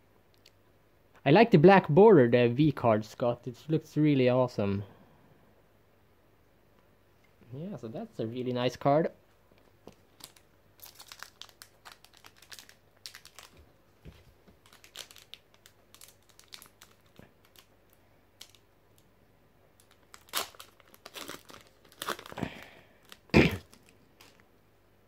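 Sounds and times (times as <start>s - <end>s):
foil wrapper crinkling: 9.9s - 18.7s, 19.8s - 24.4s
foil wrapper tearing: 10.2s - 13.6s, 14.6s - 17.7s, 18.4s - 18.6s, 19.8s - 24.4s.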